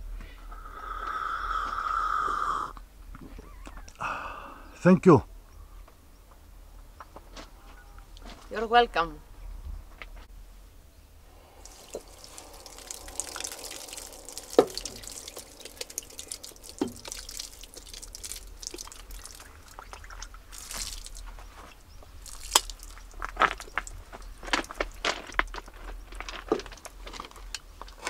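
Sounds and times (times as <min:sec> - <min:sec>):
faint water hiss: 0:00.2 - 0:02.9, 0:11.1 - 0:25.4.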